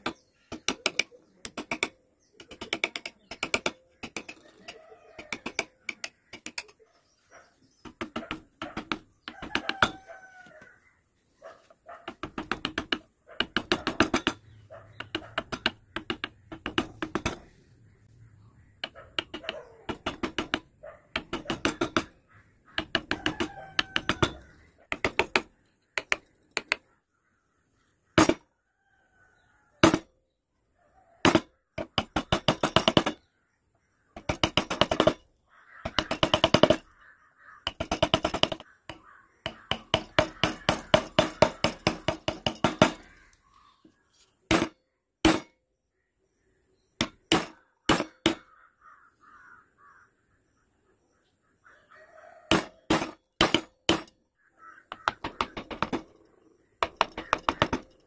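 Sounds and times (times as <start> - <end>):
chisel tapping into wood: 7.8 - 10.0, 12.1 - 14.4, 15.0 - 17.5, 18.8 - 22.1, 22.7 - 26.9, 37.6 - 43.3, 54.9 - 56.1, 56.8 - 57.9.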